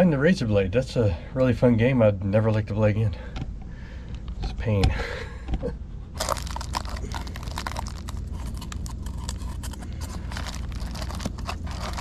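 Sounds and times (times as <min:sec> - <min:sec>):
steady low hum: 0:00.0 - 0:12.0
insulation material crackling: 0:06.2 - 0:12.0.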